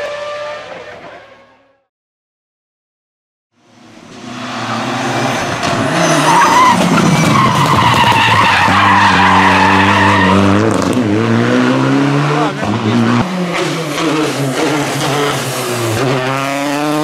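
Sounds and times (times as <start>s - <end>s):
rally car engine: 0.0s - 1.9s, 3.6s - 17.0s
tyres squealing: 5.8s - 10.6s.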